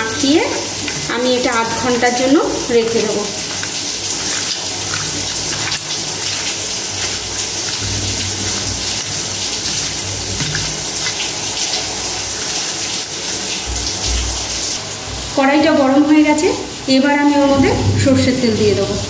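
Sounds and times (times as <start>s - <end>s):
hands squishing wet chicken: 2.8s - 11.4s.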